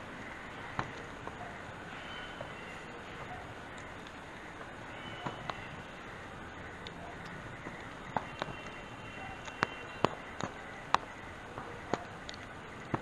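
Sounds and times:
outdoor background hiss: 0:00.0 - 0:13.0
sharp clicks: 0:06.6 - 0:13.0.

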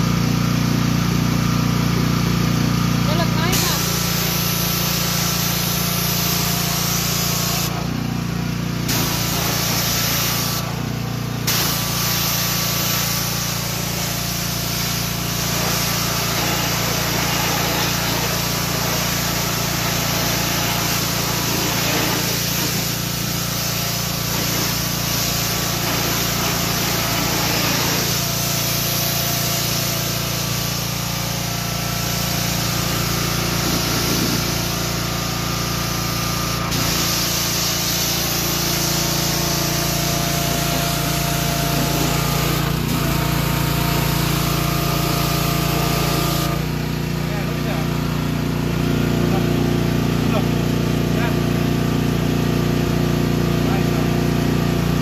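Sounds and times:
pressure washer motor hum: 0:00.0 - 0:55.0
water jet hissing: 0:03.2 - 0:47.0.

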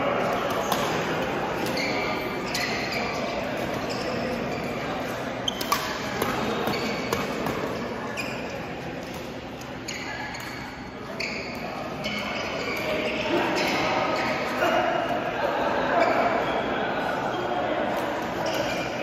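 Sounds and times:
shoes squeaking on court: 0:00.3 - 0:14.6, 0:17.3 - 0:19.0
racket hitting shuttlecock: 0:05.6 - 0:07.7.

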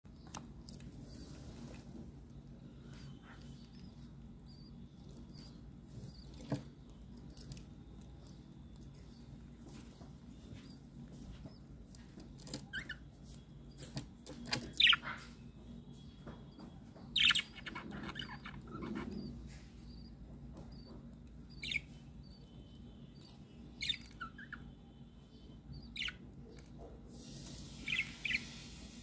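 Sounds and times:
budgerigars chirping: 0:08.6 - 0:15.4, 0:16.2 - 0:29.0.

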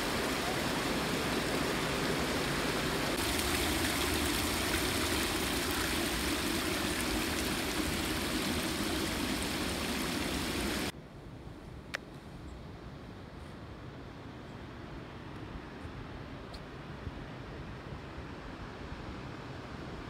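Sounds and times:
water cascading down rock: 0:00.0 - 0:10.9.

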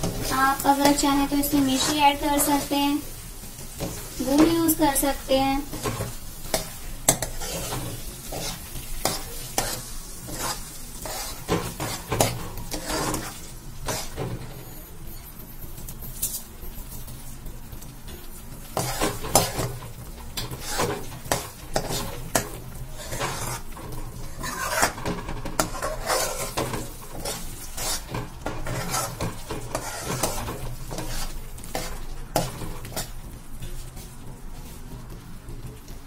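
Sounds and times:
spoon scraping a steel pan: 0:05.7 - 0:14.2, 0:18.8 - 0:19.7, 0:20.4 - 0:33.1.

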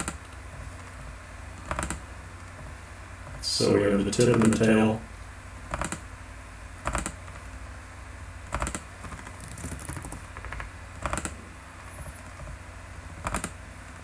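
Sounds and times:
keyboard keystrokes: 0:00.0 - 0:00.4, 0:01.6 - 0:02.0, 0:04.2 - 0:04.8, 0:05.7 - 0:06.0, 0:06.8 - 0:07.4, 0:08.5 - 0:11.4, 0:13.2 - 0:13.6
mouse clicks: 0:05.7 - 0:06.0.

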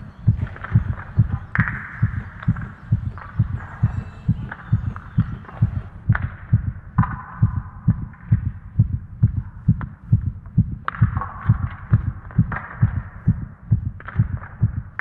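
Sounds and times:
low thumping pulse: 0:00.0 - 0:15.0.

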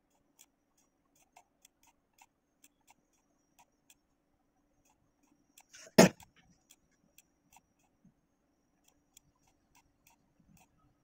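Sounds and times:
computer mouse clicking: 0:00.1 - 0:04.0.

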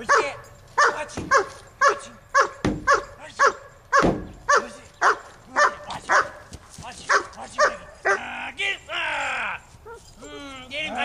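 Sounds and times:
dog barking: 0:00.0 - 0:08.3.

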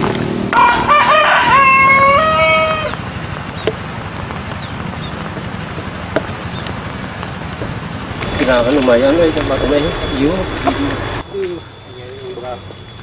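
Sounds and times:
steady background noise: 0:00.0 - 0:13.0
rooster crowing: 0:00.5 - 0:03.0.

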